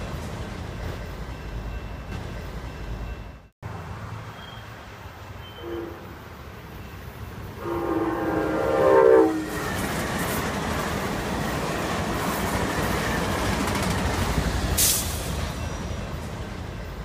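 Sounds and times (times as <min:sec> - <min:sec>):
train cars rumbling on rails: 0:00.0 - 0:17.0
train horn: 0:05.4 - 0:06.2, 0:07.6 - 0:09.6.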